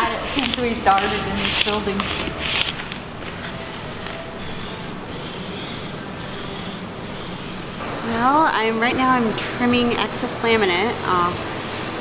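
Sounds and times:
utility knife scraping laminate: 0:00.0 - 0:03.0, 0:04.1 - 0:07.8
squeegee rubbing on vinyl film: 0:00.0 - 0:07.8.

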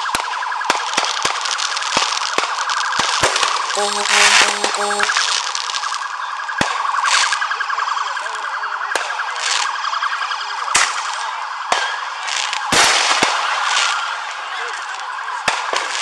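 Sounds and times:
fireworks crackle: 0:00.0 - 0:07.5, 0:10.8 - 0:16.0
fireworks bangs: 0:00.1 - 0:06.0, 0:11.7 - 0:14.3
fast warbling siren tone: 0:03.7 - 0:06.0.

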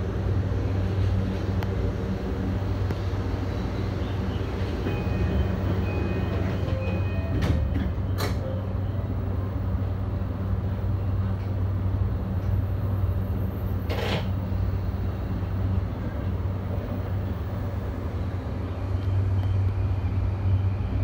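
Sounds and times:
train cab low hum: 0:00.0 - 0:21.0.

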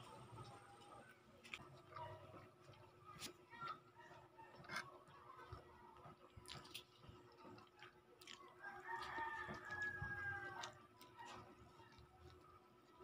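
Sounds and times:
rooster crowing: 0:08.6 - 0:10.7.

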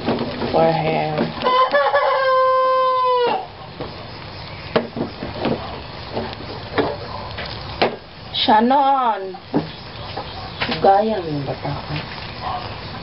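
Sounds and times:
faint sizzling: 0:00.0 - 0:13.0
rooster crowing: 0:01.4 - 0:03.6.

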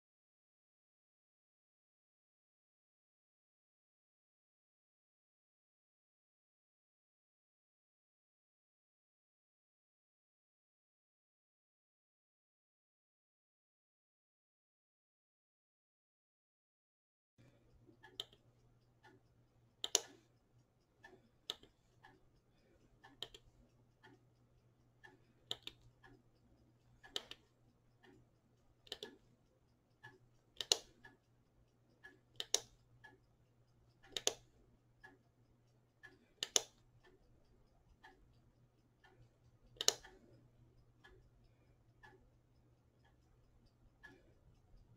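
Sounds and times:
electric blanket controller clicking: 0:19.8 - 0:20.3, 0:30.1 - 0:31.1, 0:32.1 - 0:33.2, 0:34.0 - 0:34.5, 0:36.4 - 0:36.9, 0:39.8 - 0:40.3.

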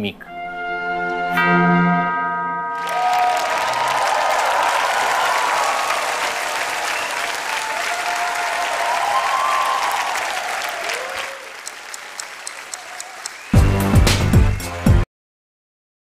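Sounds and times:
audience applause: 0:02.7 - 0:14.5.

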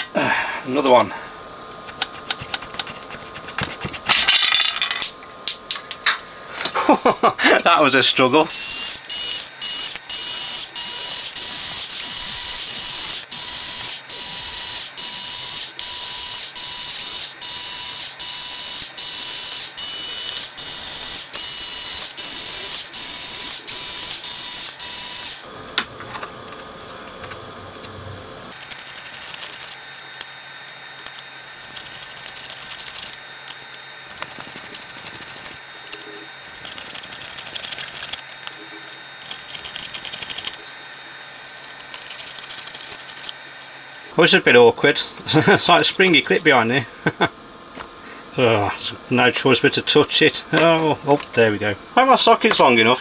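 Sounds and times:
electric screwdriver motor whine: 0:08.5 - 0:25.4.

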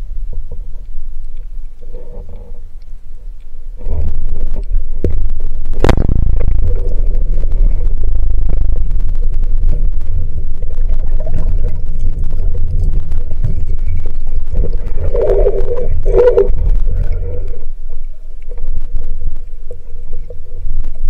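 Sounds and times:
underwater surge rumble: 0:03.8 - 0:19.8.

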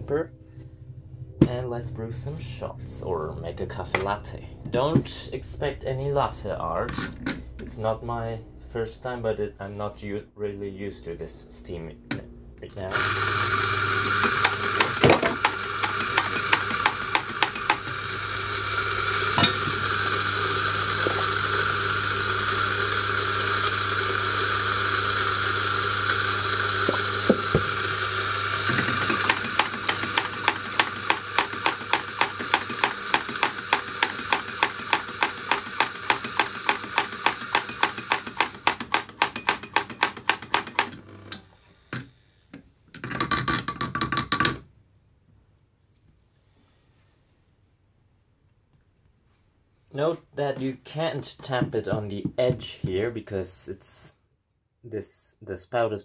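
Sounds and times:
coffee grinder motor: 0:12.8 - 0:42.0.

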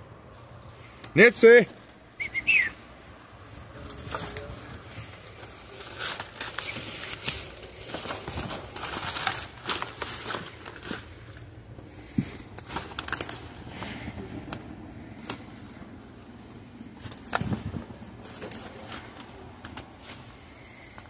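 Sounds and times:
twigs snapping underfoot: 0:03.8 - 0:11.4, 0:12.4 - 0:13.6, 0:14.4 - 0:15.6, 0:17.0 - 0:20.2.

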